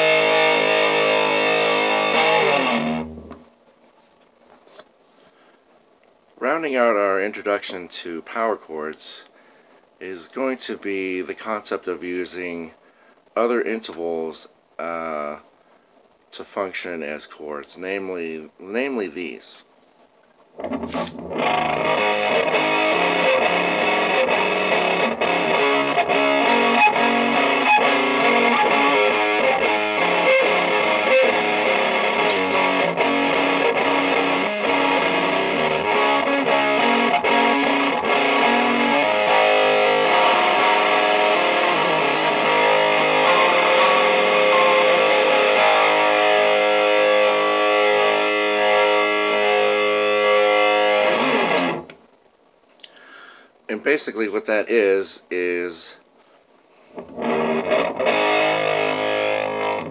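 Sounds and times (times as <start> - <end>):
distorted electric guitar riff: 0.0 - 3.6, 20.6 - 52.1, 56.9 - 59.9.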